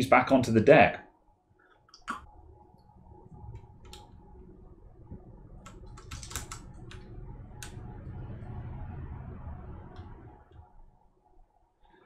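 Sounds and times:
keyboard keycaps clicking: 5.6s - 7.0s.

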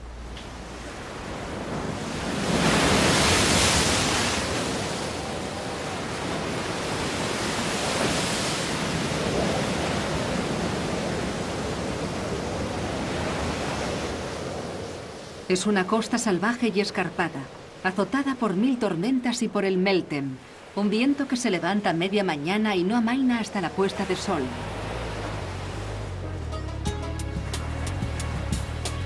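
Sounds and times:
surf washing against rocky shore: 0.5s - 15.4s.

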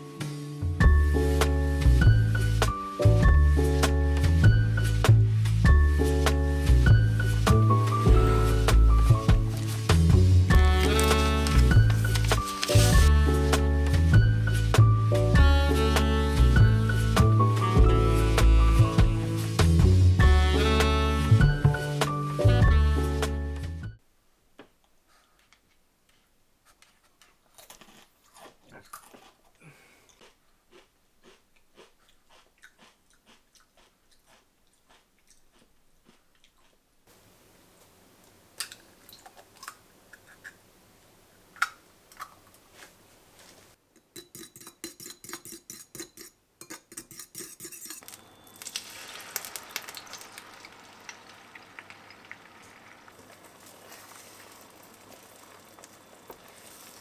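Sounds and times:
small clicks and crunches: 10.6s - 13.1s, 48.0s - 57.0s
eggs being beaten: 44.0s - 52.6s
eggs cracking on a bowl: 44.0s - 57.0s
egg sizzling in frying pan: 47.8s - 57.0s.

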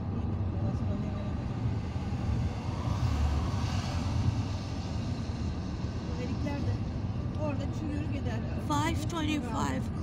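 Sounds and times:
road hiss: 1.4s - 8.2s.

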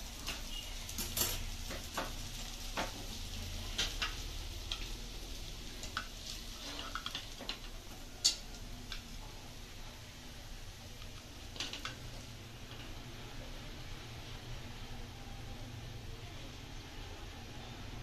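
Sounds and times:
metal spatula scraping a pan: 5.9s - 8.5s.

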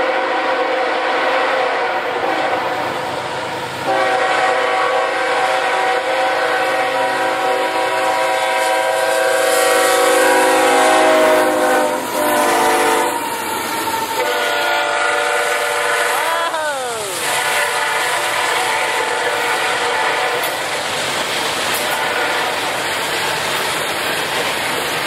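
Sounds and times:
train air horn blasts: 0.0s - 20.8s, 21.8s - 22.8s
train rumble: 0.0s - 25.0s
wheels clattering on rails: 17.3s - 25.0s.

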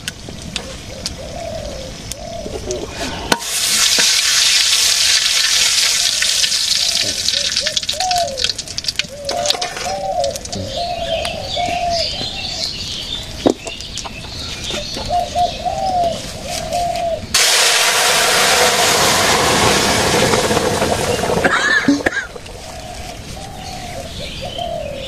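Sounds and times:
pigeon cooing: 0.6s - 3.3s, 6.9s - 12.7s, 14.7s - 17.3s, 21.5s - 25.0s
loud rushing noise: 17.3s - 23.2s.

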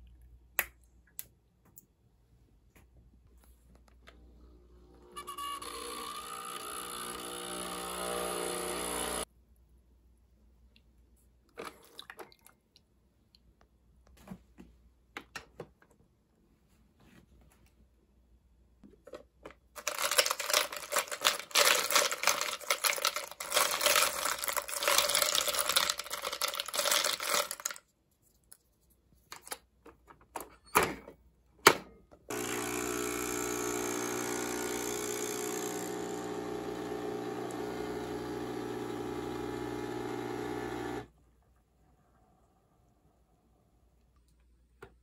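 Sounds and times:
coffee machine pump humming: 4.4s - 9.3s, 32.3s - 41.1s
espresso pouring: 5.2s - 9.2s, 32.3s - 41.1s.

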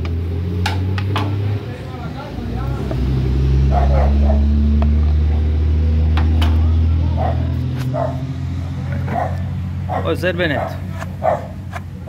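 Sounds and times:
low motor drone: 0.0s - 12.0s
dog barking: 3.7s - 4.6s, 7.1s - 8.3s, 9.1s - 11.6s.

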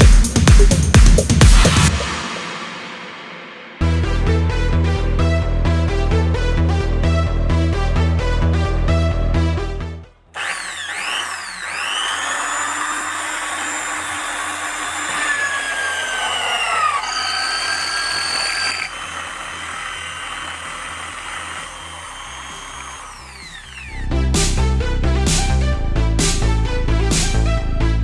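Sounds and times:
electric drill drilling into metal: 10.4s - 24.1s.

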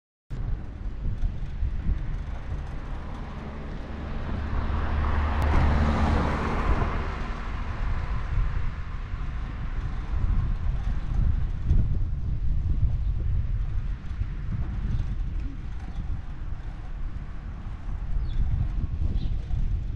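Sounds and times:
wind buffeting microphone: 0.3s - 19.9s
car passing: 1.9s - 11.6s.

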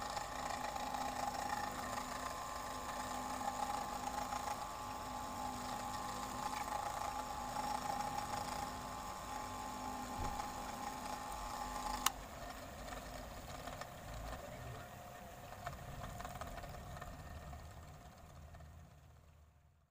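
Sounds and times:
bench grinder running: 0.0s - 19.2s.

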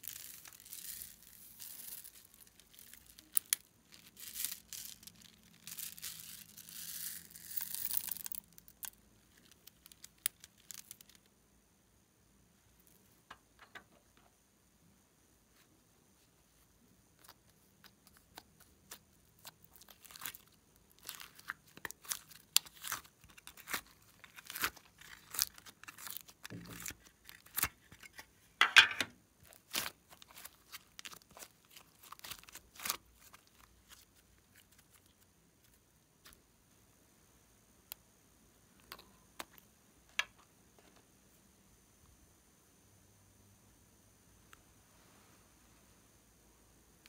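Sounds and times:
slime crackling and popping: 18.0s - 28.2s, 29.5s - 35.2s.

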